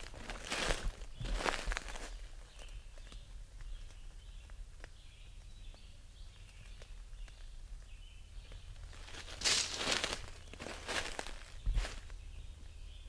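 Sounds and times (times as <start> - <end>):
footsteps through dry leaves: 0.0 - 3.1, 8.7 - 12.2.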